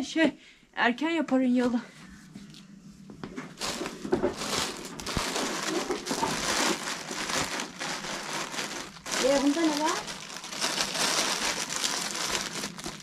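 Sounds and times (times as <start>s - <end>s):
crinkling and rustling: 3.2s - 13.0s.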